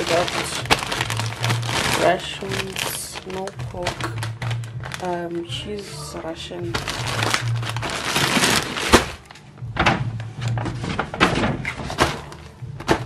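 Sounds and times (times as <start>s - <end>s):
plastic packaging crinkling: 0.0s - 9.5s.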